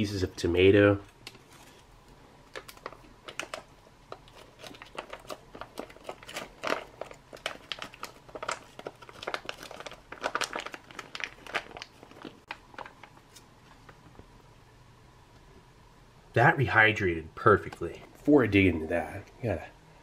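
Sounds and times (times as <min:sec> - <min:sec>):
foil pouch crinkling: 0:01.3 - 0:13.5.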